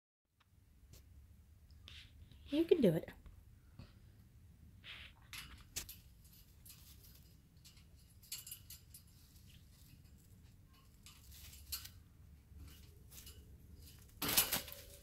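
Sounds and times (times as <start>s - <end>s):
parrot claws scratching on perch: 4.9s - 15.0s.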